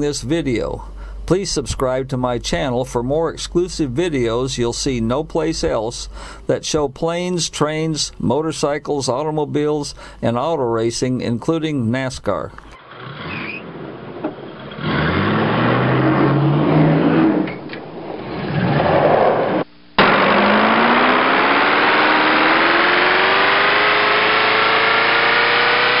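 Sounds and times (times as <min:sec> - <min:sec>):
car engine revving: 0:12.8 - 0:26.0.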